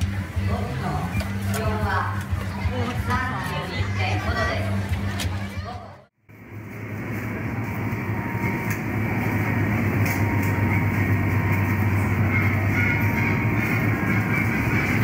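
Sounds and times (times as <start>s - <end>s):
low machinery hum: 6.3s - 15.0s
rushing noise: 6.3s - 15.0s.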